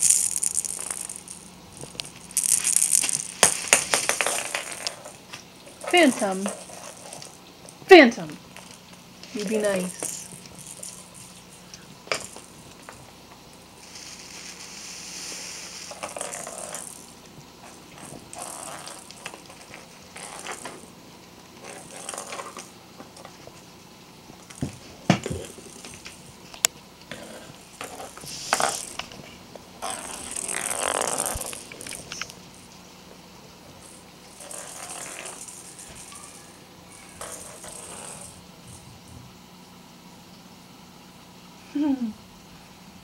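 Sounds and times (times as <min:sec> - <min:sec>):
ball toys knocking: 0:00.0 - 0:05.2, 0:24.5 - 0:26.2.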